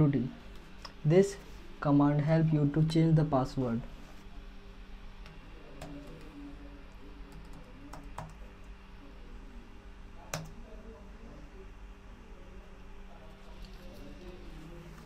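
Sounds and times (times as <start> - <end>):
faint steady hum: 0.0 - 15.0
computer keyboard clicks: 7.3 - 8.4, 10.3 - 10.6.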